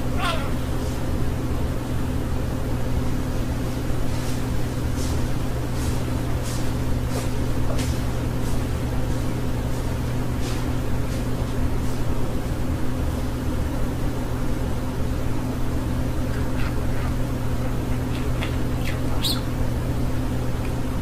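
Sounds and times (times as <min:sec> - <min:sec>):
low mechanical hum: 0:00.0 - 0:21.0
budgerigar chirping: 0:16.4 - 0:19.6.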